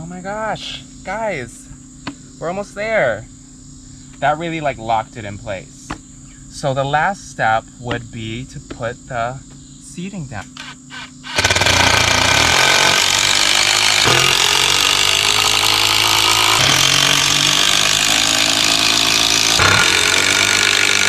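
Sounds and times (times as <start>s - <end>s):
cordless drill driving screws: 10.5s - 21.0s.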